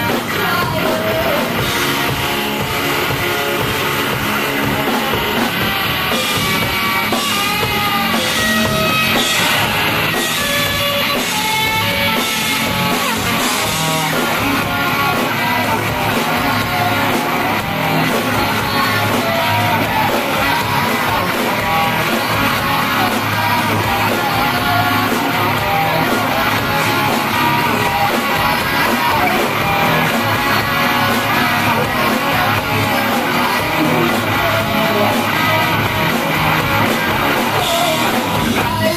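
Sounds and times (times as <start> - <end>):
woman singing into a microphone: 0.0 - 1.5
drum kit: 0.0 - 38.9
electric guitar: 0.0 - 38.9.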